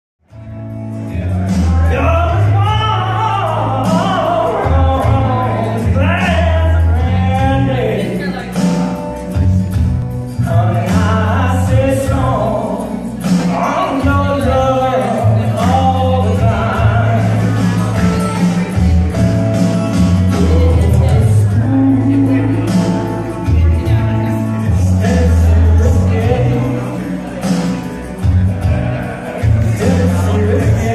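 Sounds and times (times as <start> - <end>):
backing track with bass line: 0.2 - 30.9
man singing into a microphone: 1.2 - 9.6, 10.3 - 19.3, 20.0 - 30.9.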